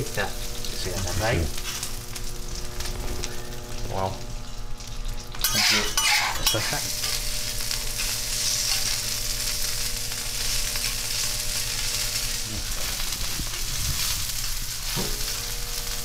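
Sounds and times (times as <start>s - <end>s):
steaks sizzling on griddle: 0.0s - 16.0s.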